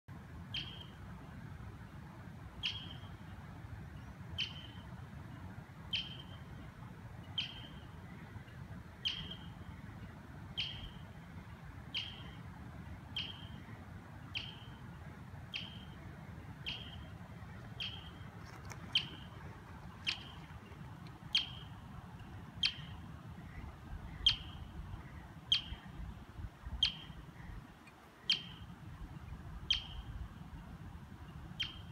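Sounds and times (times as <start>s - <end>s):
marmot alarm call chirps: 0.5s - 1.0s, 2.6s - 3.2s, 4.4s - 4.9s, 5.9s - 6.5s, 7.3s - 7.9s, 9.0s - 9.7s, 10.6s - 11.1s, 11.8s - 12.4s, 13.1s - 14.9s, 15.5s - 19.4s, 20.0s - 22.0s, 22.6s - 27.6s, 28.2s - 28.7s, 29.6s - 30.2s, 31.5s - 31.9s.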